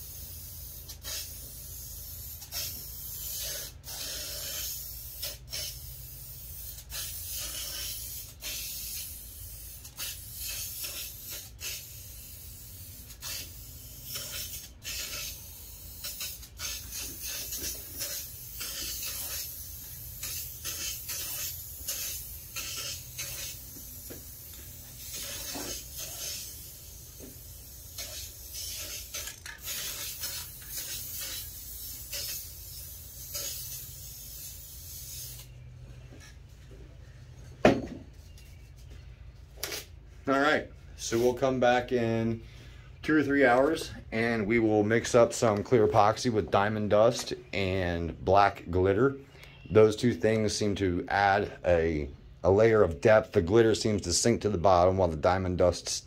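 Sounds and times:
aerosol can spraying: 0:00.0 - 0:35.5
steady low hum: 0:00.0 - 0:56.0.

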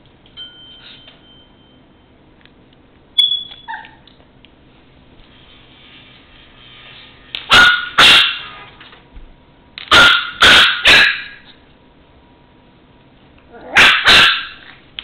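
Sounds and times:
puppy barking: 0:03.7 - 0:04.1, 0:07.5 - 0:08.6, 0:09.9 - 0:11.4, 0:13.5 - 0:14.8.

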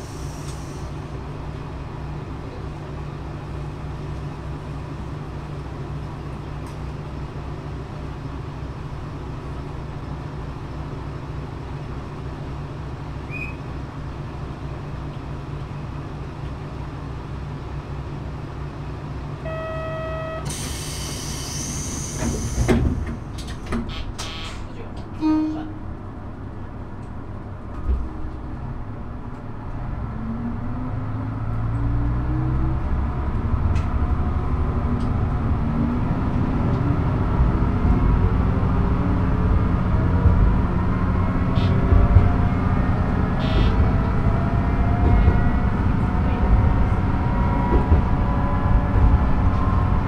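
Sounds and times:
railcar engine idling: 0:00.0 - 0:29.9, 0:37.3 - 0:50.0
air hiss: 0:20.5 - 0:22.9.

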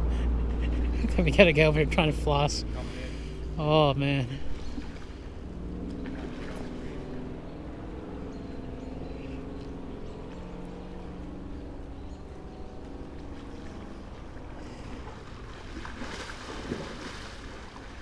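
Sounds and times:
steady low drone: 0:00.0 - 0:18.0.

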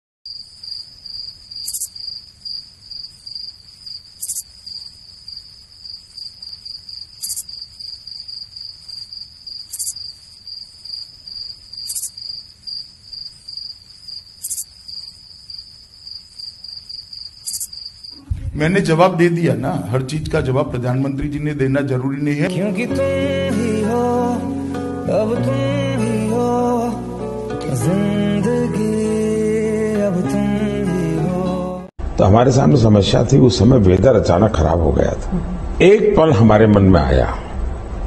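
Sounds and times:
crickets chirping: 0:00.3 - 0:18.5.

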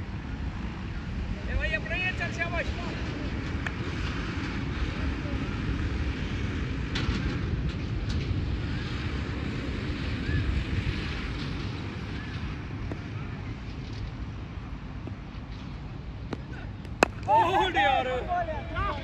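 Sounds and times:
wind buffeting microphone: 0:02.6 - 0:19.0
faint distant voices: 0:12.0 - 0:15.3.

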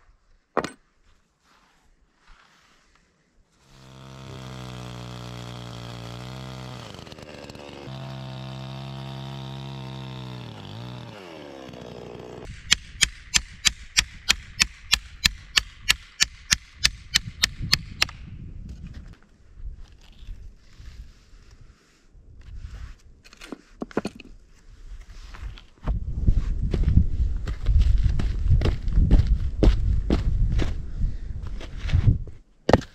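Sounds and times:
chainsaw engine running: 0:03.6 - 0:12.5.

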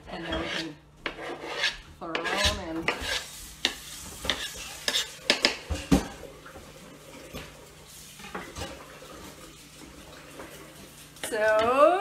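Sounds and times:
knife scraping cutting board: 0:00.0 - 0:06.0.

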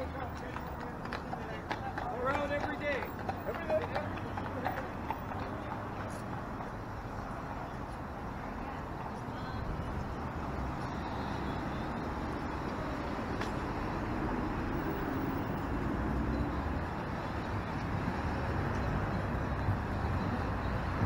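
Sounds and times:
cars driving past: 0:00.0 - 0:21.0.

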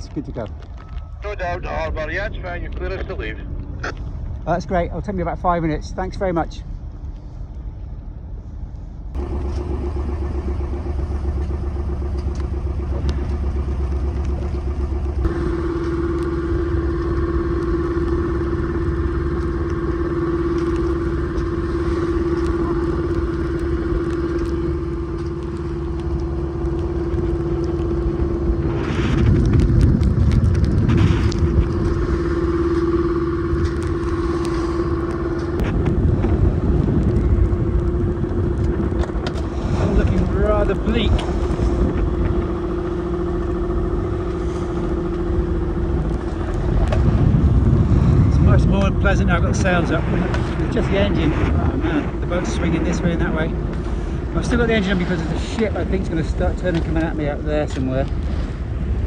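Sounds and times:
boat engine humming: 0:00.0 - 0:59.0
sea against the hull: 0:06.6 - 0:59.0
wind rushing: 0:26.9 - 0:56.2.

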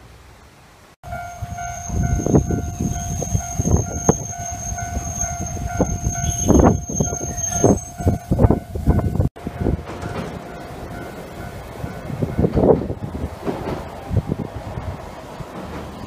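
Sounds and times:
tram rumbling: 0:00.6 - 0:16.0
level crossing warning bell: 0:01.0 - 0:12.7.

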